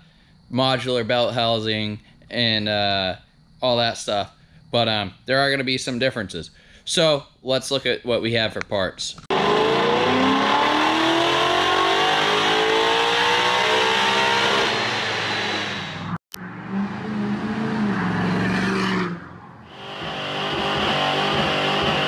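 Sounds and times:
engine running at steady pitch: 9.3 - 18.0, 19.4 - 22.0
car engine revving at full throttle: 9.3 - 22.0.

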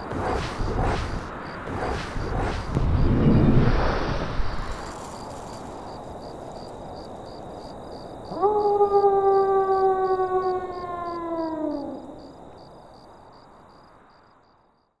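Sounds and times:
wolf howling: 8.3 - 12.4.

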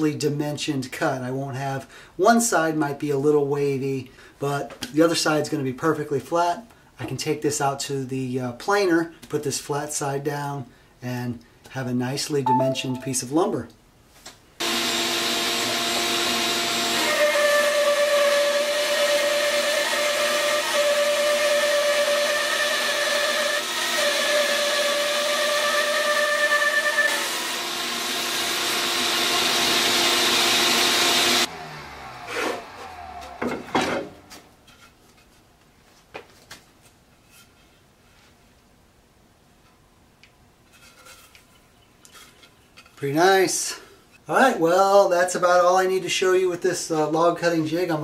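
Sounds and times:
saw winding down: 14.6 - 33.7
bandsaw cutting wood: 14.6 - 34.2.

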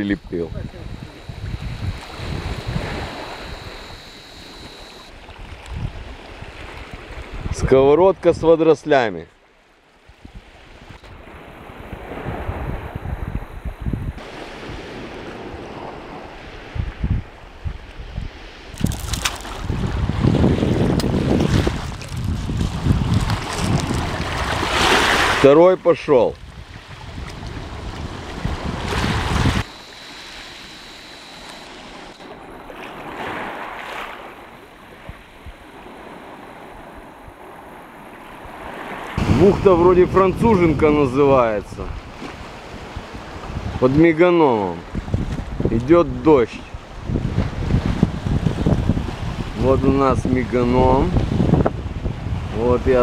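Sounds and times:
wind buffeting microphone: 0.0 - 8.0, 10.1 - 25.4, 26.4 - 33.5, 34.2 - 43.8, 44.8 - 53.0
small sea waves: 0.0 - 53.0
sea water washing against rocks: 18.6 - 25.6, 26.3 - 39.6.

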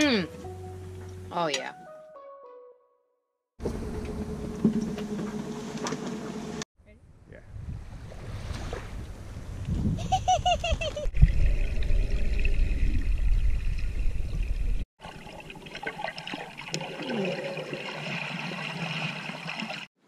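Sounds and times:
wind rumble on microphone: 6.9 - 14.8
underwater bubbling and gurgling: 11.2 - 19.8.

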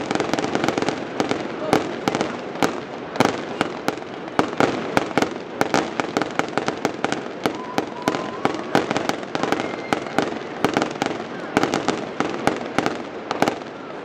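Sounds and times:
fireworks bangs and cracks: 0.0 - 14.0
sparks crackling and sputtering: 0.0 - 14.0.

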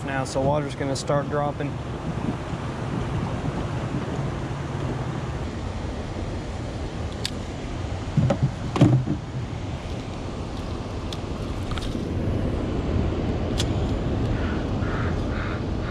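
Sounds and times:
dull knocks in a canoe: 8.1 - 9.5.

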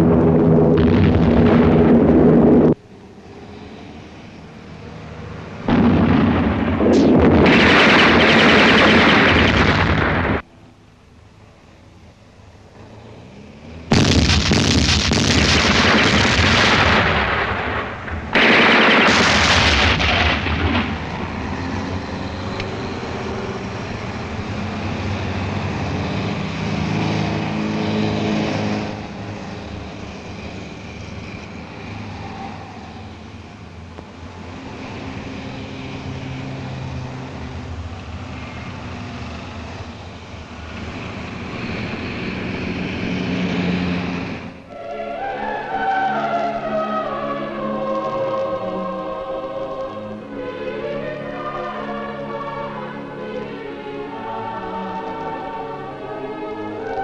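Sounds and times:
low rumbling din: 0.0 - 10.8, 12.6 - 26.2
heavy gunfire with blasts: 5.7 - 10.4, 13.9 - 21.4.

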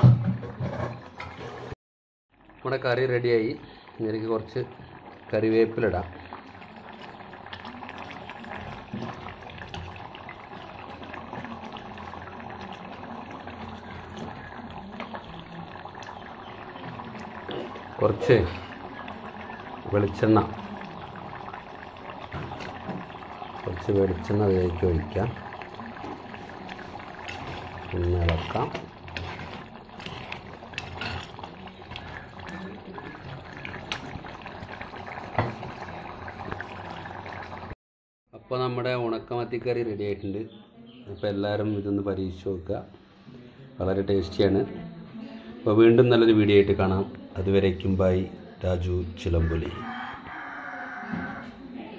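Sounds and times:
curry bubbling and popping: 2.3 - 37.8.

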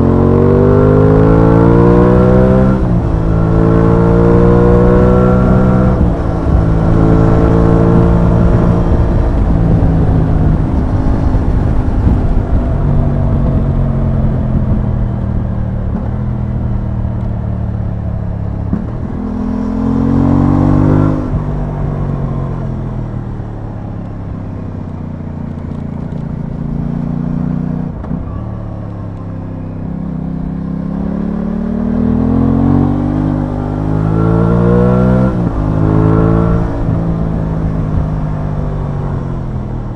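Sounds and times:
motorcycle engine revving: 0.0 - 39.9
wind over microphone: 2.2 - 17.3.

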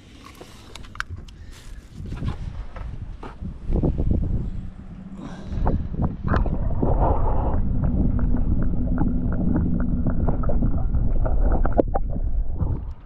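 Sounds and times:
muffled underwater rumble: 1.1 - 13.0
small underwater clicks and crackles: 5.6 - 13.0.

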